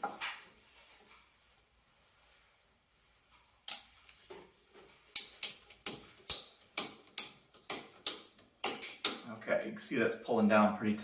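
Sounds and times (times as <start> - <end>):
ratchet strap clicking: 3.7 - 4.0, 5.1 - 9.2.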